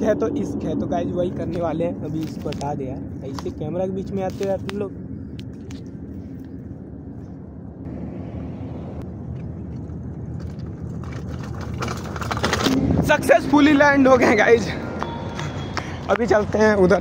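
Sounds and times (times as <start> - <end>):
rushing tyres and wind: 0.0 - 17.0
bicycle rattles and knocks: 1.4 - 6.6, 9.3 - 13.2.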